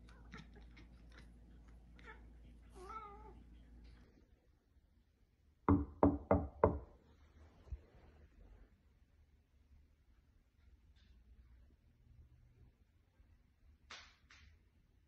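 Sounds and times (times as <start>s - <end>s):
cat meowing: 0.0s - 3.4s
knuckles knocking on drawer: 5.7s - 6.8s.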